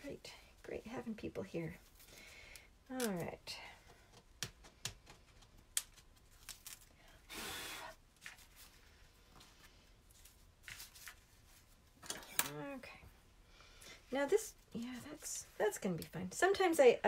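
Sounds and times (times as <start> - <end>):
paper rustling: 8.2 - 11.8.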